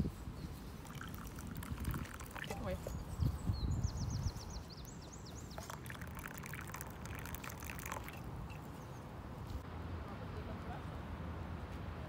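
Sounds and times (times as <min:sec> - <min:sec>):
hot drink pouring into a mug: 0:00.8 - 0:02.8, 0:05.4 - 0:08.7.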